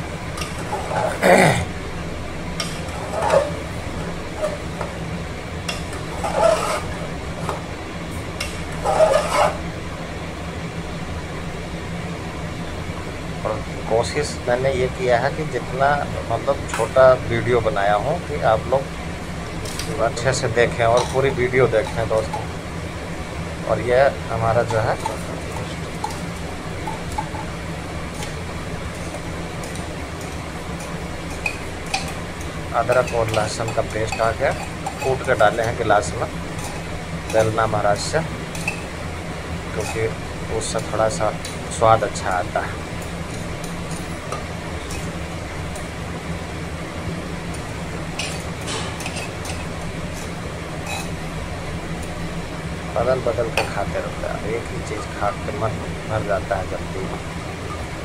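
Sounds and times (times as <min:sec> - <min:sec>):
steady low hum: 0:00.0 - 0:58.0
metal spatula scraping a pot: 0:00.4 - 0:01.2, 0:02.6 - 0:03.7, 0:05.7 - 0:07.6, 0:08.4 - 0:09.6, 0:21.0 - 0:22.5, 0:32.8 - 0:38.9, 0:39.7 - 0:40.2, 0:48.2 - 0:51.2
spoon scraping steel tumbler: 0:02.6 - 0:03.6, 0:05.7 - 0:07.6, 0:08.4 - 0:09.6, 0:19.6 - 0:22.5, 0:24.0 - 0:39.0, 0:39.7 - 0:45.2, 0:47.6 - 0:51.2.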